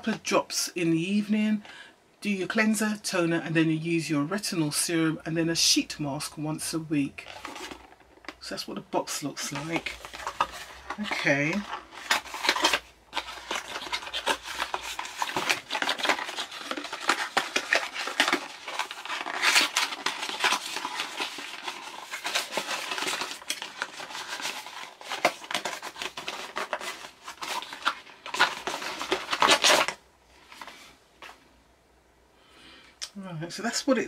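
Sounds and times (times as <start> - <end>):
cardboard carton rustling: 7.2 - 8.2, 9.4 - 31.4.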